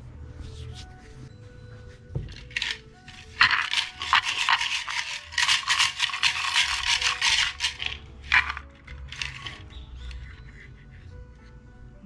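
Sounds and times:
wooden sticks rattling in box: 0:02.2 - 0:10.7.

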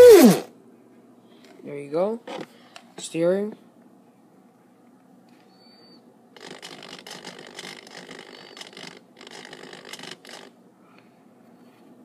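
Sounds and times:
servo gear rattling: 0:06.4 - 0:10.5.

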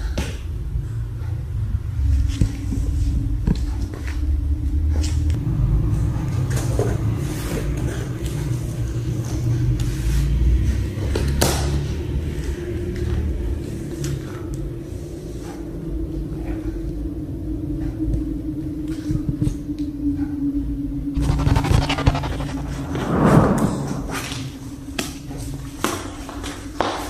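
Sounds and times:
continuous low rumble: 0:00.0 - 0:26.8
cats scratching cardboard box: 0:21.2 - 0:22.7.

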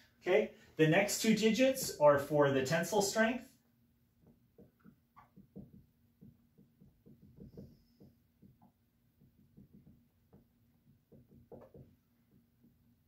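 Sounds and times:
soft small taps and rustles: 0:04.2 - 0:12.9.

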